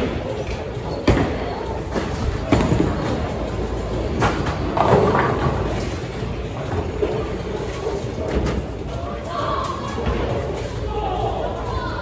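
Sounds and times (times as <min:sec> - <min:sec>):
bowling balls rolling: 0:04.0 - 0:05.9.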